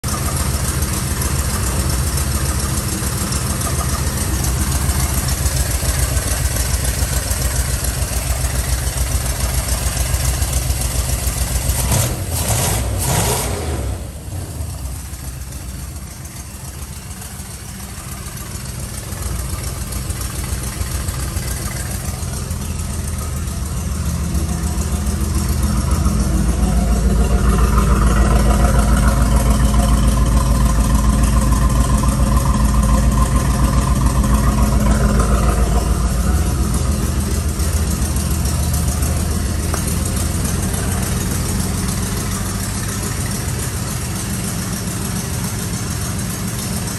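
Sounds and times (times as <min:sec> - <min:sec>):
car engine idling: 0:00.0 - 0:46.9.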